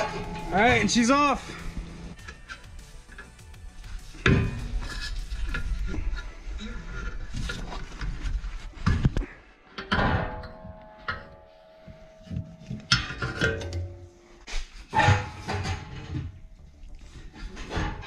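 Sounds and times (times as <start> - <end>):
metallic ringing: 0.0 - 3.4, 9.8 - 14.4
metal clanks and knocks: 0.0 - 3.6, 4.2 - 5.7, 8.8 - 16.6, 17.4 - 18.0.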